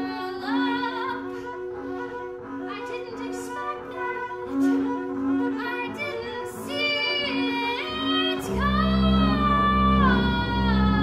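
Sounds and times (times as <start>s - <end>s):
woman singing: 0.0s - 11.0s
bowed double bass: 4.4s - 11.0s.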